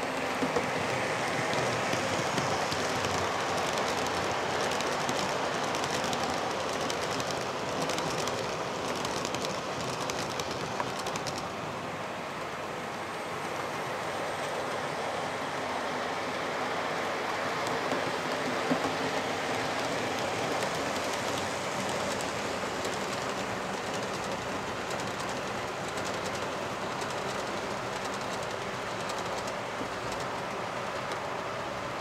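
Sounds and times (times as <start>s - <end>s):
clicking over rail joints: 0.0s - 11.5s, 17.6s - 31.4s
small wheels rolling on track: 0.0s - 11.6s, 17.1s - 32.0s.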